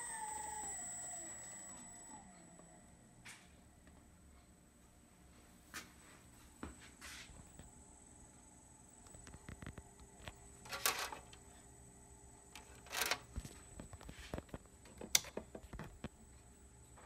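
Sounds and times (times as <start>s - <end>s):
faint high-pitched whine: 0.0s - 5.9s.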